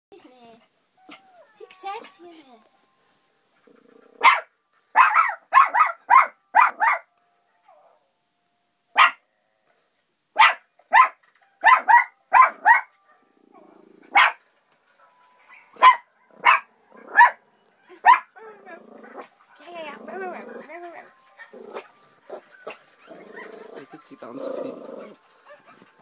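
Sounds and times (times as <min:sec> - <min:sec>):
dog barking sharply: 0:04.2 - 0:07.0, 0:10.4 - 0:12.9.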